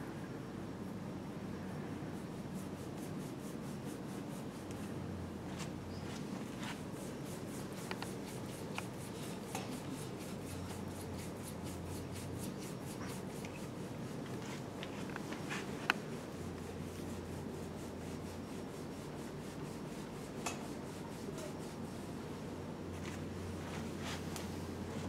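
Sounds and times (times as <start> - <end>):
hands rubbing skin: 5.6 - 16.2.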